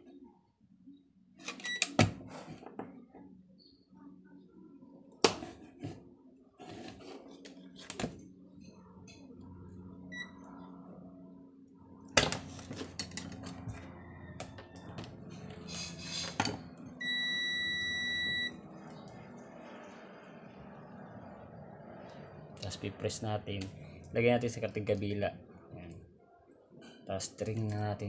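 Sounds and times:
multimeter continuity beep: 10.1 - 10.4, 17.0 - 18.6.

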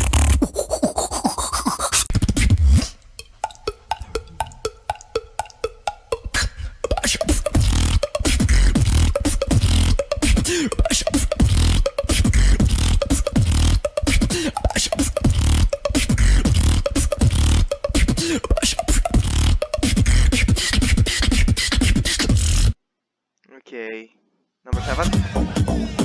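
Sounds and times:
beatboxing tongue clicks: 0.0 - 22.8
short pitched vocal glides: 3.6 - 5.1.

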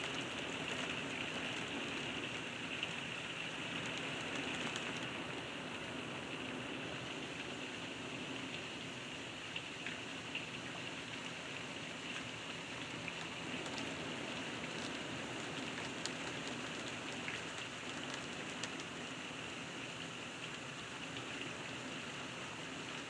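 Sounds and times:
heavy rain: 0.0 - 23.0.

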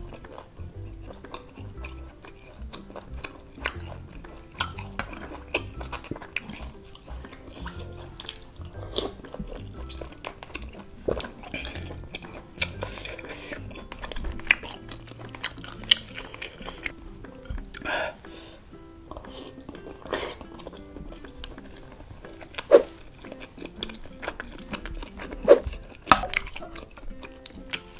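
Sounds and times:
cutlery clinking against a bowl: 0.0 - 18.4, 19.1 - 27.9
background music: 0.0 - 27.9
chewing: 0.0 - 27.9.

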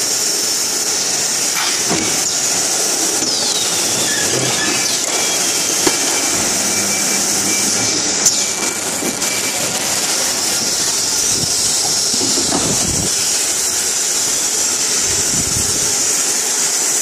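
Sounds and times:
machinery hissing: 0.0 - 17.0
falling squeal: 1.9 - 14.4.

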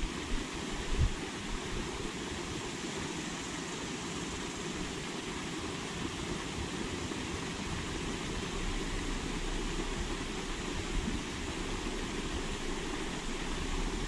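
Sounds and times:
wind rumble on microphone: 0.0 - 2.4, 6.4 - 14.0
fountain spraying: 0.0 - 14.0.

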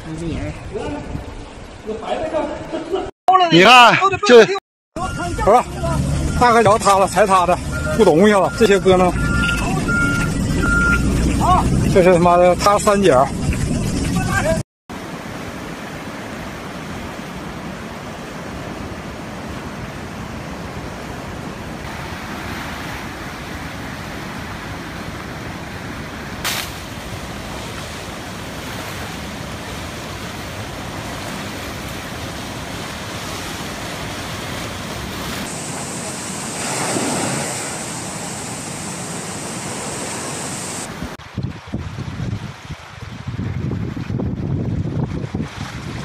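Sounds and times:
rushing floodwater: 0.7 - 46.0
wind buffeting microphone: 8.8 - 14.6, 40.8 - 46.0.

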